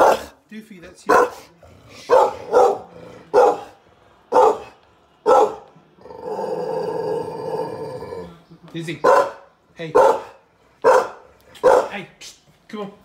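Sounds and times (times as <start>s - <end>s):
dog barking loudly: 0.0s - 0.4s, 1.0s - 5.7s, 9.0s - 12.0s.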